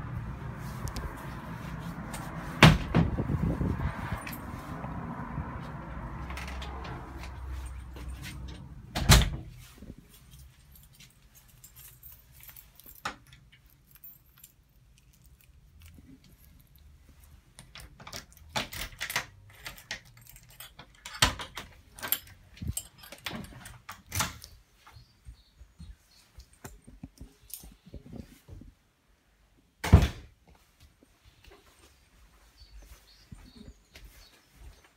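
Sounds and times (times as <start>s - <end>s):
keys jangling: 10.1s - 24.5s
key rattling in door lock: 17.6s - 24.5s.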